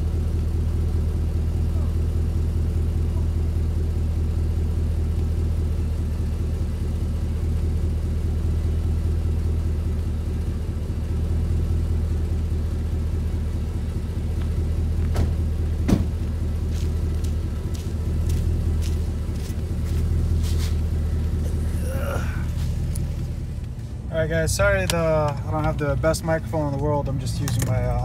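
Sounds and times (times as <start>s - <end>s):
engine idling with low rumble: 0.0s - 28.0s.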